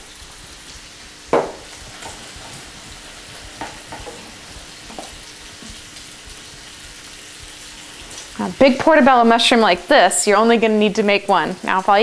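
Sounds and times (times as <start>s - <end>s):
bacon sizzling in a frying pan: 0.0s - 12.0s
soft knocks on a plate: 1.4s - 2.2s.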